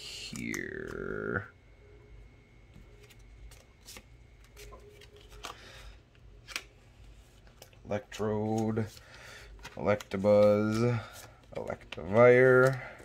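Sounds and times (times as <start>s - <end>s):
cards rustling and clicking: 2.8s - 13.0s.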